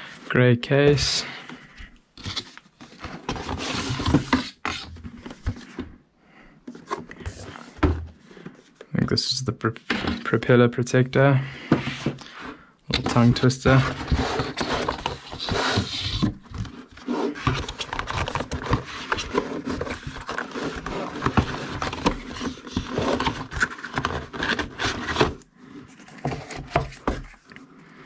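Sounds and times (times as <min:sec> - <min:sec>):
cardboard scraping and tapping: 0:12.9 - 0:25.4, 0:26.0 - 0:27.4.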